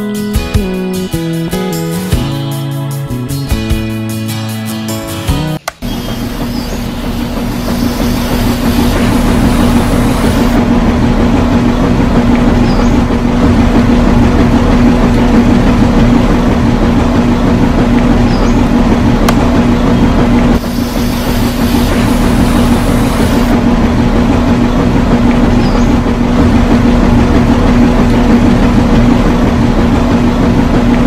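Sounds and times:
motor humming: 5.6 - 10.6, 20.5 - 23.6
high hiss: 5.9 - 10.6, 20.6 - 23.5.

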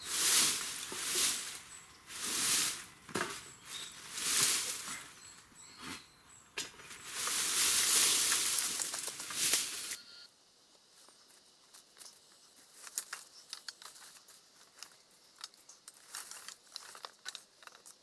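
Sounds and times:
footsteps through dry leaves: 0.0 - 6.0, 6.7 - 10.0
rustling in dry leaves: 0.0 - 10.0, 10.9 - 18.0
scraping along a branch: 0.0 - 10.0.

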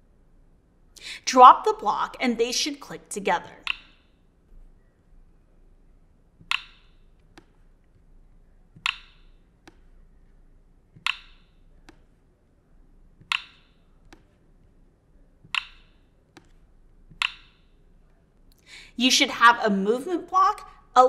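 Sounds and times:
code blocks snapping clicks: 6.5 - 6.8, 11.0 - 12.0, 15.6 - 16.5.

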